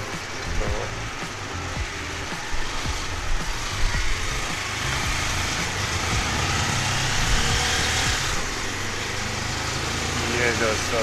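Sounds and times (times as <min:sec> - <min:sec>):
motorcycle engine running: 0:00.0 - 0:11.0
wind and road noise: 0:00.0 - 0:11.0.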